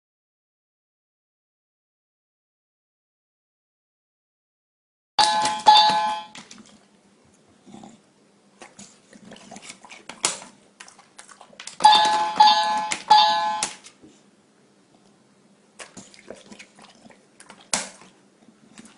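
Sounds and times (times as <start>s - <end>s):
electronic doorbell chime: 5.2s - 6.4s, 11.8s - 13.7s.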